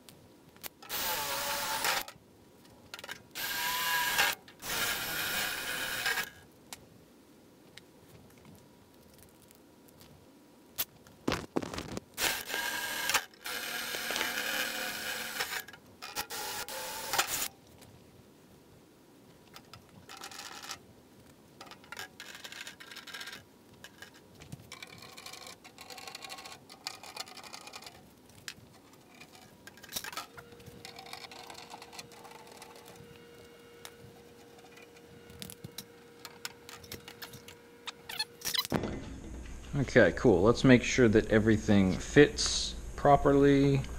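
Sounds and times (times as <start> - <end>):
faint steady hum: 0.0 - 43.9
cordless power tool running: 0.9 - 2.1, 3.4 - 6.3, 12.2 - 17.5
tools clicking and knocking: 21.6 - 33.0, 34.6 - 38.8.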